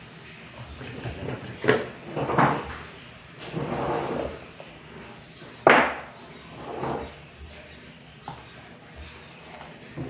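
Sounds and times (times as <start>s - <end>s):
box scraping on table: 3.4s - 4.4s, 6.6s - 7.2s.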